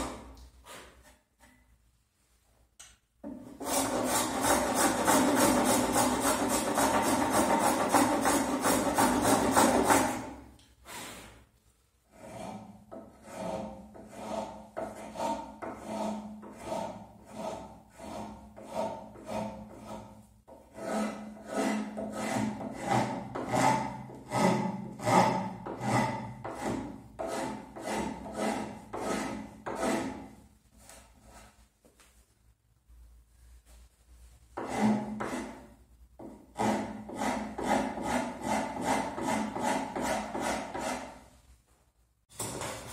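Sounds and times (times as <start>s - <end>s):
edge tool shaving wood: 3.6s - 10.3s, 12.1s - 20.1s, 20.7s - 30.3s, 36.6s - 41.2s
rasp scraping wood: 3.6s - 11.4s, 12.1s - 30.4s, 34.6s - 41.3s.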